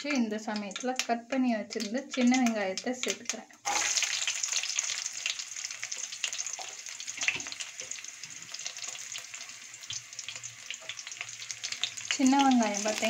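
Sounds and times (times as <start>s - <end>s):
oil sizzling with crackles: 0.0s - 13.0s.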